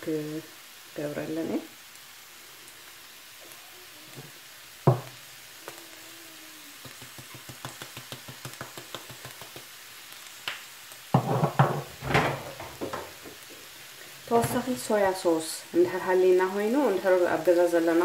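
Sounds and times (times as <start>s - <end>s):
vegetables frying in a pan: 0.0s - 18.0s
knocking and clatter: 11.2s - 13.4s.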